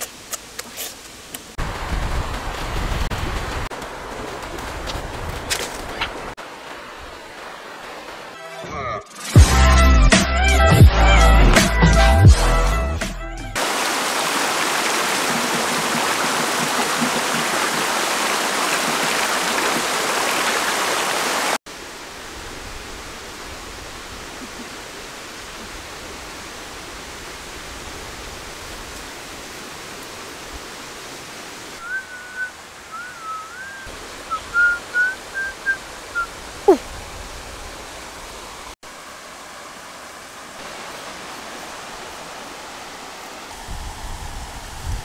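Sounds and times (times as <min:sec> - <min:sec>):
stream flowing: 0:00.0 - 0:08.7, 0:13.6 - 0:45.0
outdoor hiss: 0:13.6 - 0:45.0
boy whistling: 0:31.8 - 0:36.8.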